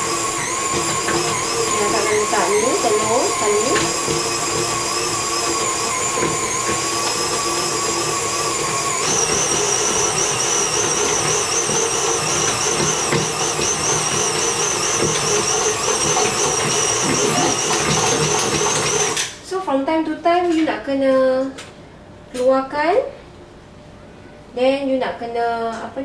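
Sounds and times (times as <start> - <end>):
stand mixer motor whine: 0.0 - 19.4.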